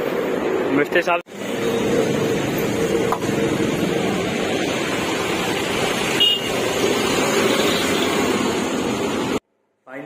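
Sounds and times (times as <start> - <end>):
road traffic: 0.0 - 10.0
vehicle horn toot: 6.2 - 6.6.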